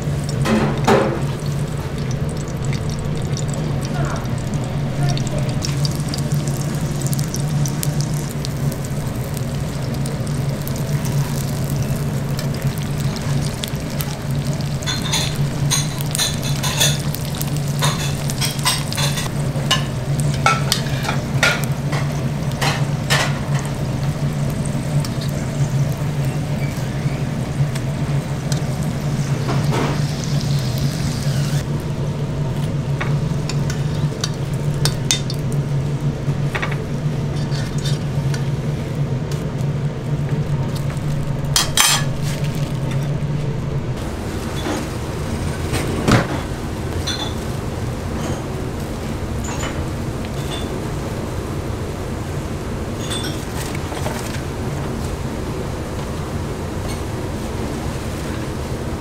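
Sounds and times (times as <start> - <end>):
oil popping and crackling: 0.0 - 31.9, 32.5 - 43.2
dumplings sizzling in oil: 0.0 - 43.3, 46.5 - 59.0
steady low hum: 0.0 - 59.0.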